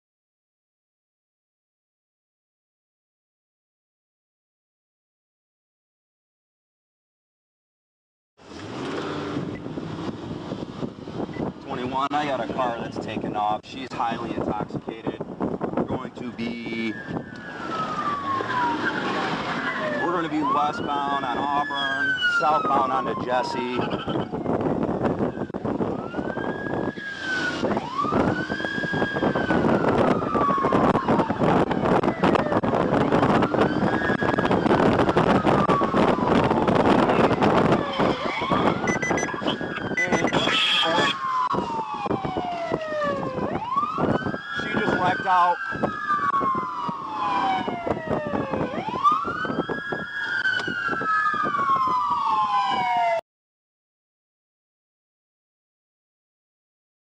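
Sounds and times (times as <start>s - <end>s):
car engine: 8.4s - 11.6s
road noise: 8.4s - 53.2s
police siren wailing: 16.6s - 53.2s.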